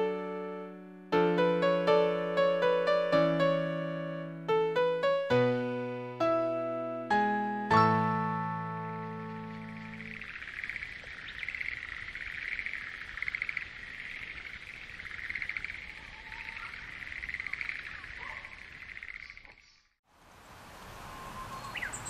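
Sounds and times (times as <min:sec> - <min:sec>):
frogs calling in pulsed trills: 0:09.4 - 0:19.9.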